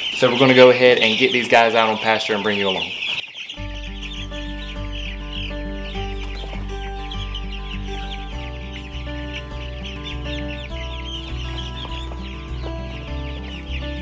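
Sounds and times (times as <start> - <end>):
chicks peeping: 0.0 - 14.0
background music: 3.5 - 14.0.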